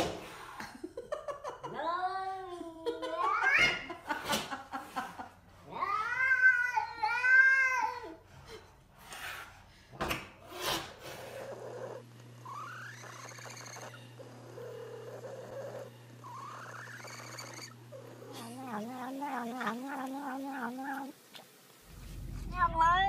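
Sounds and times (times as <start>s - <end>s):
cat purring with chirps: 11.2s - 21.2s, 21.9s - 23.0s
cat mewing while eating: 16.3s - 21.2s.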